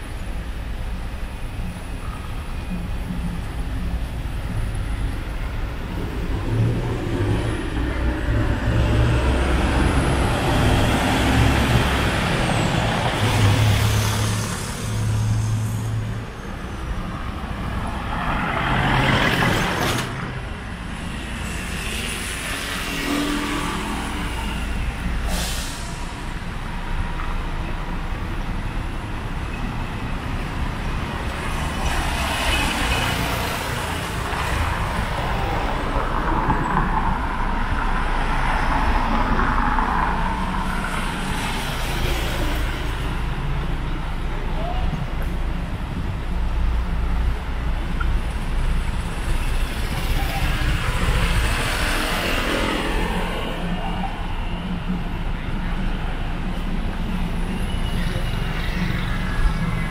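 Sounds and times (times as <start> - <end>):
vehicles passing: 0.0 - 59.9
short hisses: 25.2 - 26.1.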